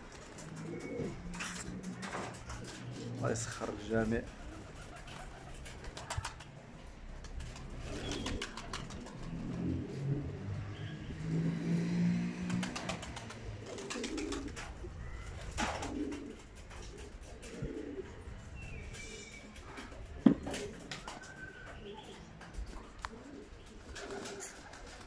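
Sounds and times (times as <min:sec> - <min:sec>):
pigeons cooing: 0:00.0 - 0:06.4, 0:07.5 - 0:11.4, 0:12.5 - 0:25.0
wing flaps: 0:07.2 - 0:09.6, 0:12.5 - 0:18.0, 0:22.6 - 0:25.0.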